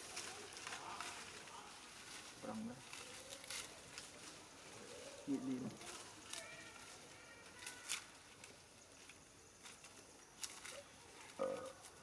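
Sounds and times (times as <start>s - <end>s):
faint outdoor hiss: 0.0s - 12.0s.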